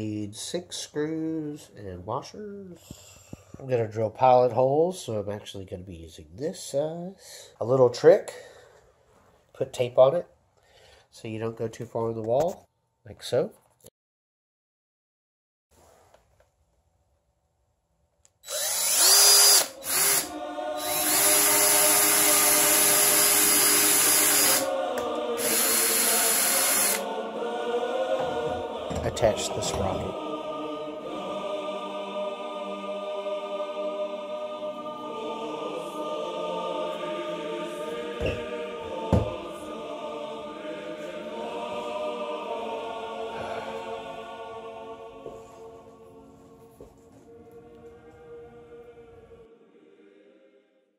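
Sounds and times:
cordless drill whining: 18.4 - 24.7, 25.4 - 27.0
choir-like background music: 19.1 - 50.9.

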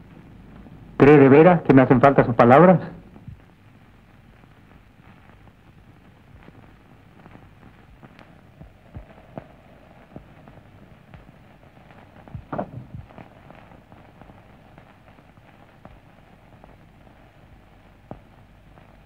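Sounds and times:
film soundtrack hiss and crackle: 0.0 - 19.0
knocks or thumps: 12.4 - 13.1.

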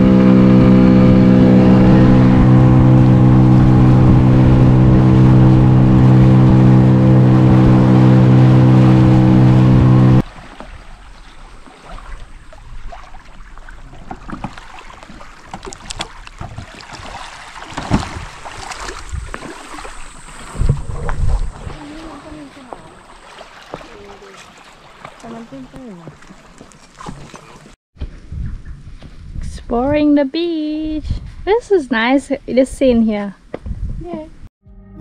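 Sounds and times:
outboard motor running: 0.0 - 10.3, 14.0 - 27.8
water lapping: 0.0 - 27.8
small water splashes: 10.2 - 27.8.

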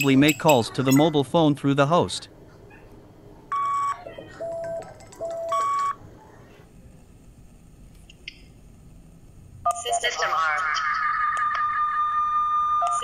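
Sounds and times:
phone ringing electronic tones: 3.5 - 6.0.

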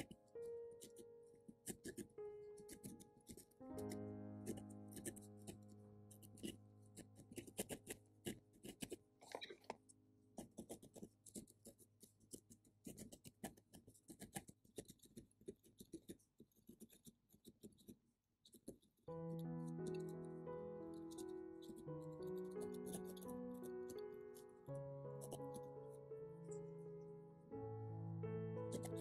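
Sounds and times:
background music: 0.0 - 7.9, 19.1 - 29.0
felting needle stabbing wool: 10.4 - 19.0.

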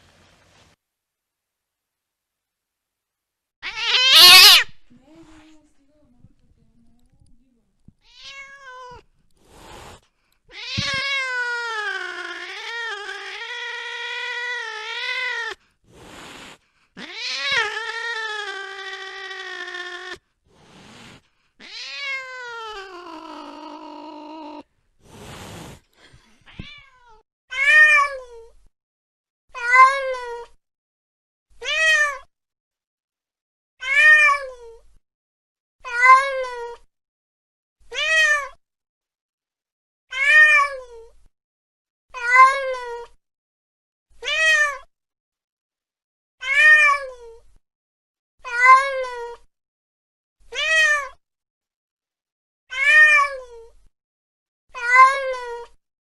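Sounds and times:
cat meowing: 3.6 - 4.8, 8.0 - 9.1, 10.5 - 15.6, 17.0 - 20.2, 21.6 - 24.7, 26.4 - 28.3, 29.6 - 30.5, 31.6 - 32.3, 33.8 - 34.6, 35.9 - 36.8, 37.9 - 38.6, 40.1 - 40.9, 42.2 - 43.2, 44.2 - 44.9, 46.4 - 47.4, 48.4 - 49.4, 50.5 - 51.2, 52.7 - 53.6, 54.8 - 55.8.

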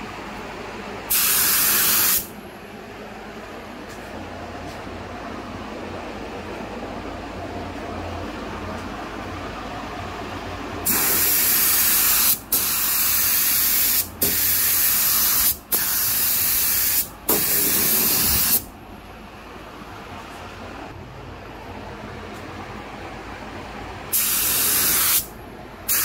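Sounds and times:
spray gun hissing: 1.1 - 2.3, 10.8 - 18.7, 24.1 - 25.3.

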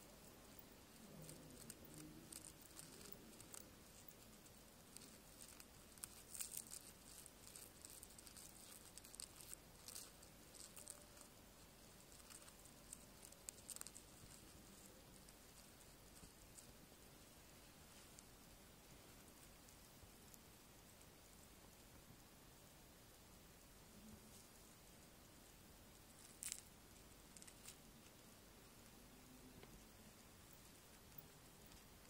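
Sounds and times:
beetle scratching in sand: 0.5 - 16.7.

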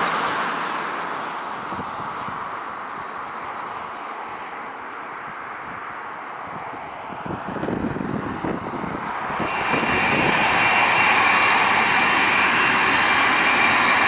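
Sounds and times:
wind noise: 1.6 - 3.3, 5.3 - 14.0
jet engines running: 6.6 - 14.0.

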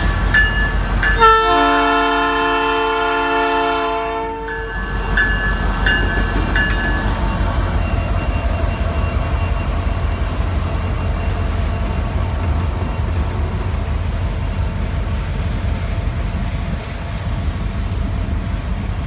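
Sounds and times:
train rumbling past: 0.0 - 19.0
locomotive air horn chord: 1.2 - 4.7.

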